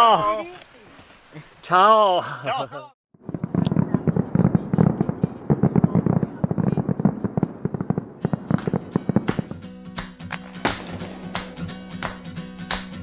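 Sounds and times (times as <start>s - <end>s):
crickets chirring: 3.2s - 9.6s
fireworks popping and banging: 3.2s - 13.0s.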